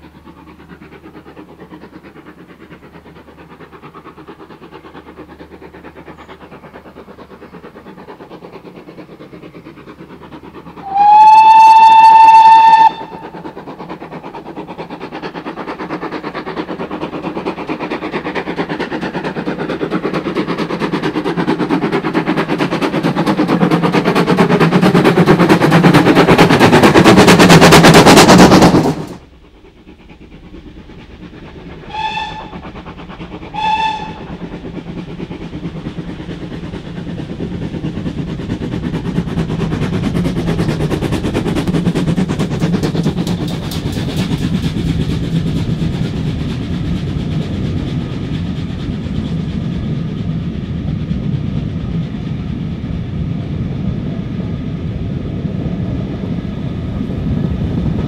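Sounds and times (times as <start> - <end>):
train running noise: 0.0 - 58.0
steam locomotive whistle: 10.8 - 13.3, 31.8 - 32.6, 33.5 - 34.3.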